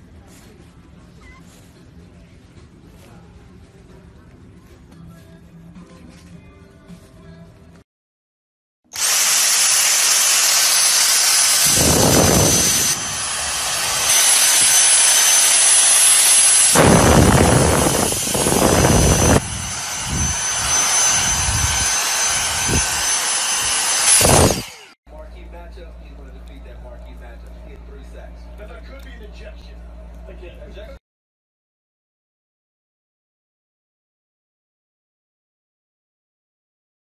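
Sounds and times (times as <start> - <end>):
vacuum motor whining: 9.0 - 25.0.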